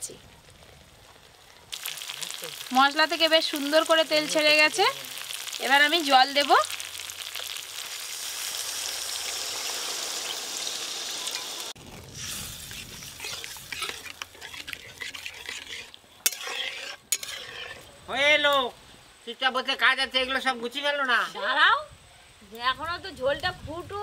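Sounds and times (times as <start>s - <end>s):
gravy sizzling in hot oil: 0.0s - 19.9s
metal spatula scraping: 12.2s - 18.0s.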